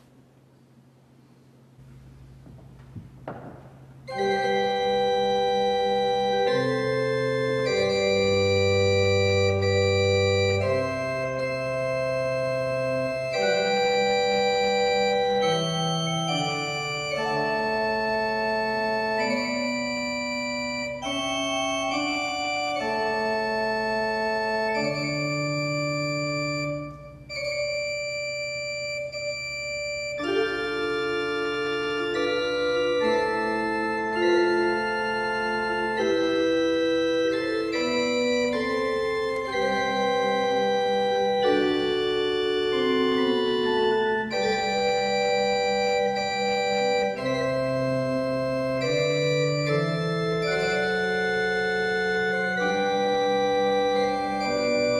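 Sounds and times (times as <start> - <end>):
pipe organ chords: 0.0 - 54.9.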